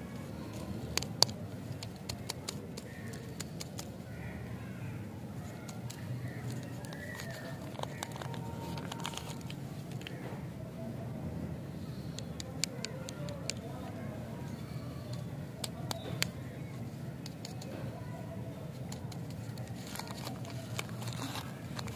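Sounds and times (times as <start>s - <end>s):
candy wrapper crinkling: 0.5s - 3.9s, 5.4s - 10.2s, 18.8s - 21.9s.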